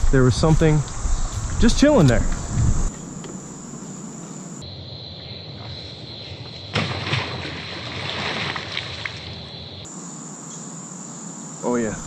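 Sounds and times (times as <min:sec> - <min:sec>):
insects trilling: 0:00.0 - 0:12.0
float splashing into water: 0:06.7 - 0:09.5
water sloshing: 0:06.7 - 0:09.8.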